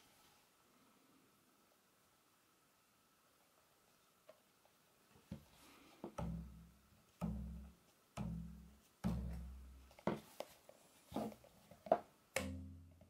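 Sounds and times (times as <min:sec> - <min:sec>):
silicone band snapping: 0:12.4 - 0:13.0.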